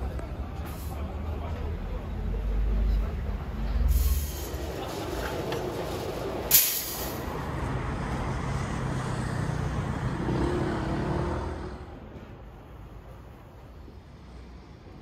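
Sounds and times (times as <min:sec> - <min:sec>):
street traffic: 0:00.0 - 0:15.0
short sharp hiss: 0:06.5 - 0:07.2.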